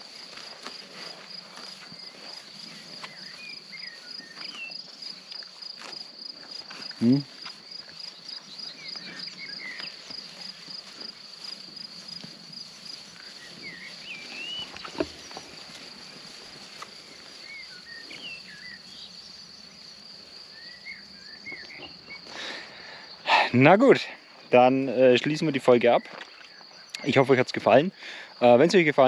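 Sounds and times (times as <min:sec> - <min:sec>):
crickets chirping: 0:00.0 - 0:29.0
songbird warbling: 0:13.2 - 0:15.7.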